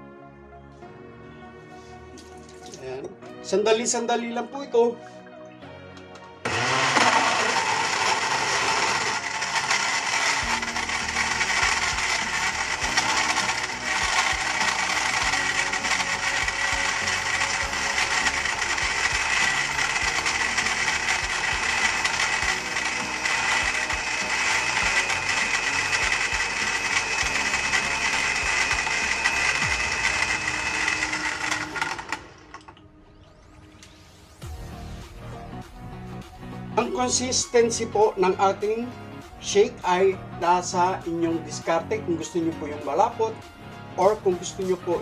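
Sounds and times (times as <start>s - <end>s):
blender crushing ice: 6.4s - 32.8s.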